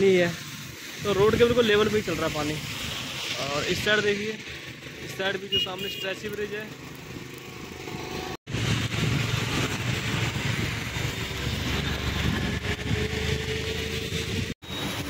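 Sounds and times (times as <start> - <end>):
moving vehicle noise: 0.0 - 15.0
wind buffeting microphone: 7.7 - 15.0.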